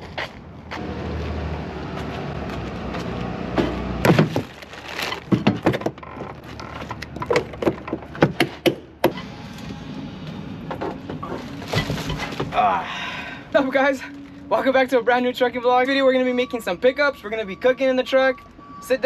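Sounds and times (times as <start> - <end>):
sharp knocks and thuds: 2.9 - 4.5, 5.2 - 6.3, 7.1 - 9.2.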